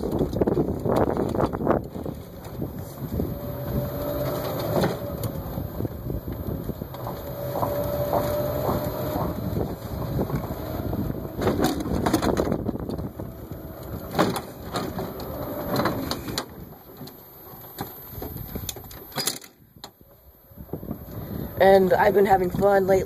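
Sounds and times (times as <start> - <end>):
knocks and rattles: 0.0 - 5.7, 6.3 - 20.0
golf cart rumbling over dirt: 0.0 - 19.8.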